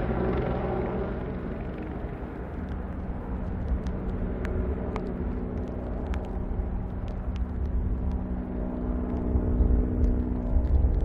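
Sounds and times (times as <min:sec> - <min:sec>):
helicopter engine drone: 0:00.0 - 0:11.0
wind buffeting microphone: 0:00.0 - 0:11.0
faint ticks: 0:02.6 - 0:11.0.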